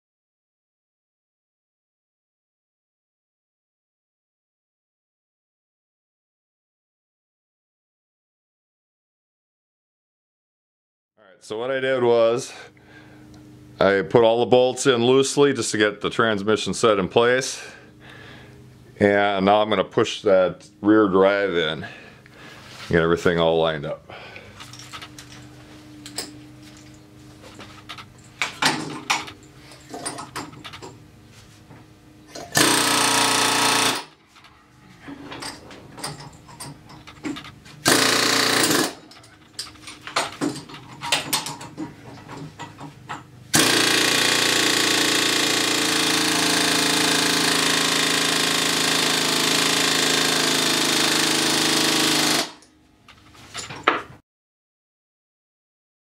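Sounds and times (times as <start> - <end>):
pneumatic air hammer rattling: 24.5 - 31.0, 32.3 - 54.0.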